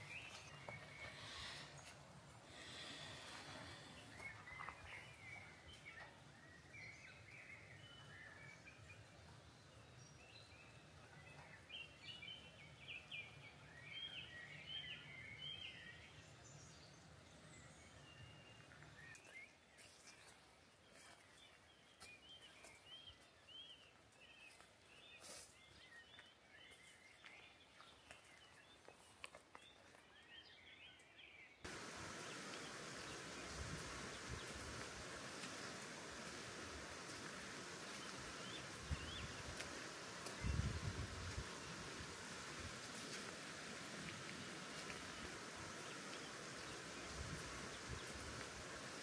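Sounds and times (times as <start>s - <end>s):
loud steady rushing hiss: 0.0s - 4.2s, 31.7s - 49.0s
small birds chirping: 0.0s - 49.0s.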